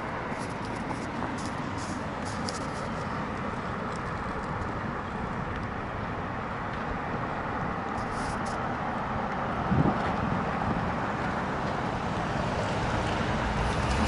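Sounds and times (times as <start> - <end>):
road traffic hiss: 0.0 - 14.0.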